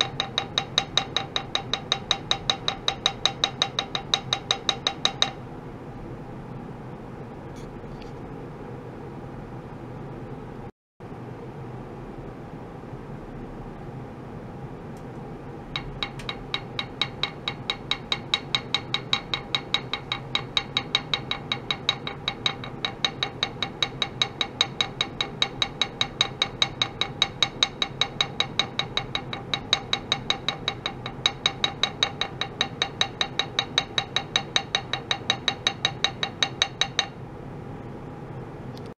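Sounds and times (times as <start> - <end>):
hammer tapping metal plate: 0.0 - 5.4, 15.7 - 37.2
steady background hum: 0.0 - 38.9.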